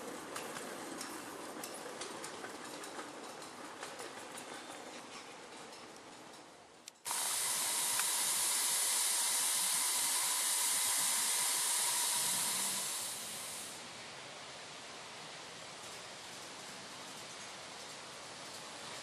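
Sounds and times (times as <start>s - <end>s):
steam hissing: 7.1s - 14.0s.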